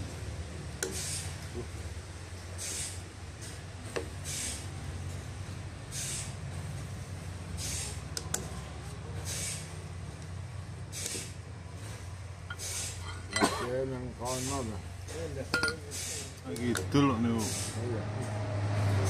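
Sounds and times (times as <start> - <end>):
short hiss: 0.9 - 1.3, 2.6 - 3.0, 4.2 - 4.7, 5.9 - 6.4, 7.6 - 8.0, 9.2 - 9.7, 10.9 - 11.3, 12.5 - 13.2, 15.9 - 16.3, 17.4 - 17.8.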